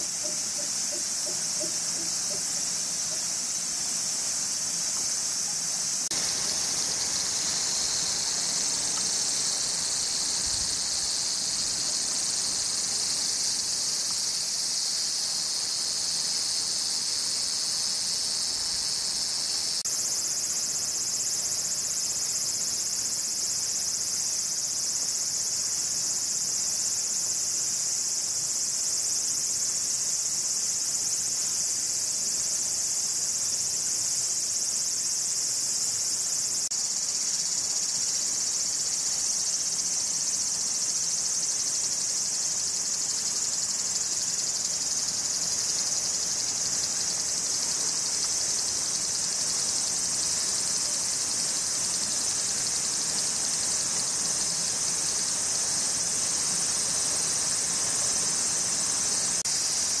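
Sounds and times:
insects chorus: 0:00.0 - 1:00.0.

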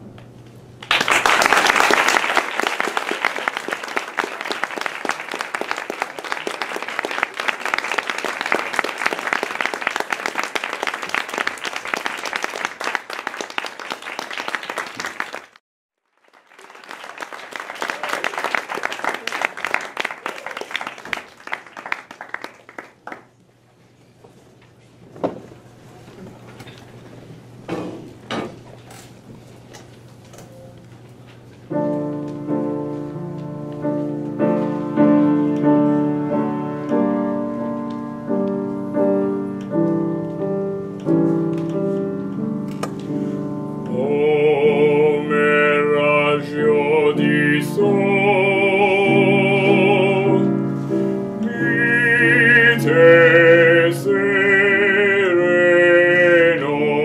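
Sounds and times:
audience applauding: 0:00.8 - 0:23.3.

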